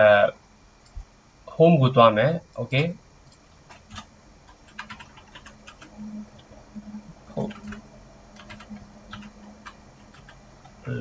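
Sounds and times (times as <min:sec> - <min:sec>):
faint steady hum: 0:00.0 - 0:11.0
computer keyboard typing: 0:02.8 - 0:06.5, 0:07.3 - 0:11.0.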